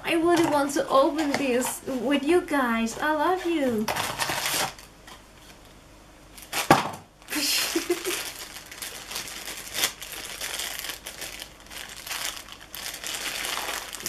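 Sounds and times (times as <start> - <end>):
foil bag crinkling: 3.6 - 4.9, 6.3 - 14.0
box tearing crack: 3.9 - 4.9, 6.4 - 7.0.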